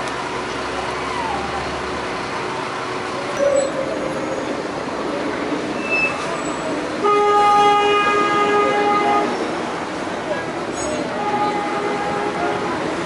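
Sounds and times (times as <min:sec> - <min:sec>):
passing street traffic: 0:00.0 - 0:13.0
vehicle horn long note: 0:07.0 - 0:09.4, 0:11.1 - 0:12.8.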